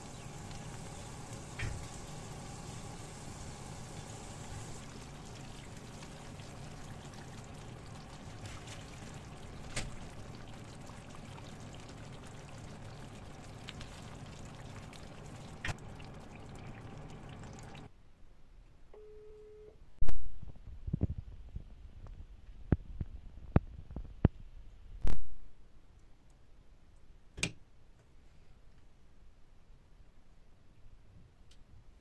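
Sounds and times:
vegetables sizzling in oil: 0.0 - 15.8
short beep: 19.0 - 19.8.

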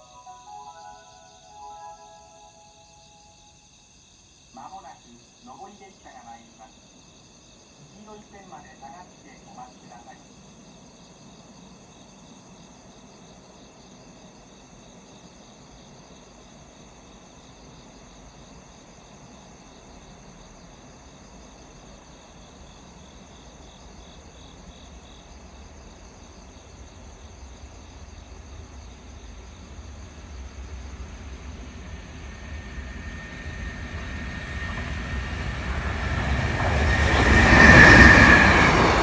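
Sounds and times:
crickets and insects chirring: 0.0 - 39.0
freight train rumble: 24.2 - 39.0.

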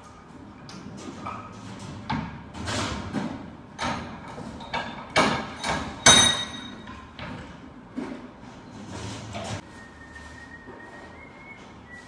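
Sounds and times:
metal knocks and clanks: 0.6 - 9.6.

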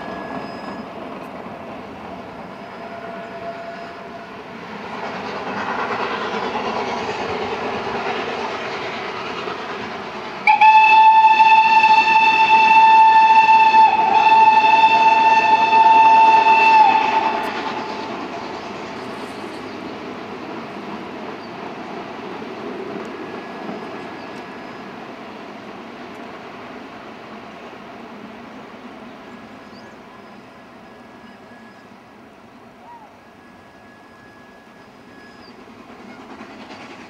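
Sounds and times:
locomotive whistle: 0.0 - 1.0, 2.4 - 4.5, 10.4 - 18.2, 29.5 - 32.1, 32.7 - 36.3
steam train running: 0.0 - 37.0.

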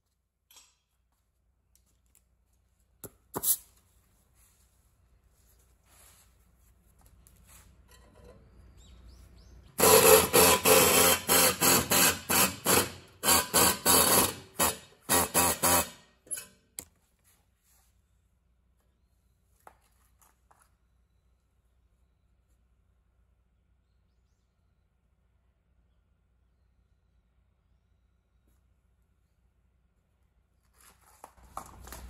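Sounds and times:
hammer blows on sheet steel: 9.8 - 16.3.

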